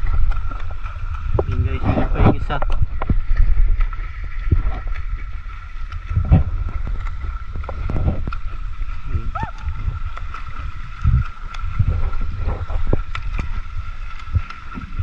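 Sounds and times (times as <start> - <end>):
water lapping against boat hull: 0.0 - 15.0
wind rumble on microphone: 0.0 - 15.0.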